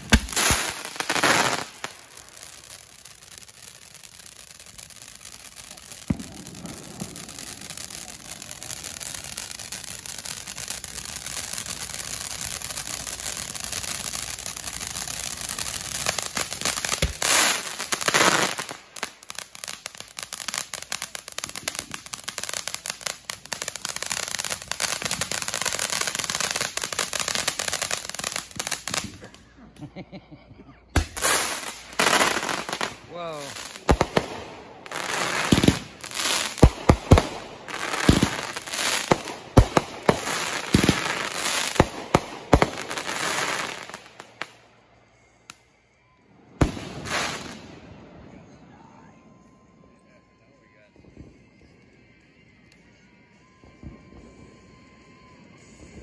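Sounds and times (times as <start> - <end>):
firework bangs: 0.0 - 29.3, 31.0 - 44.4, 46.6 - 47.9
fountain firework hissing and crackling: 0.0 - 29.4, 31.0 - 44.5.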